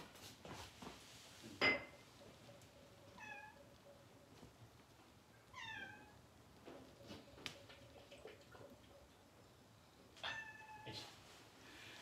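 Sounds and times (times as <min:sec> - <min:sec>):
cat meowing: 0:05.5 - 0:06.2, 0:10.2 - 0:11.0.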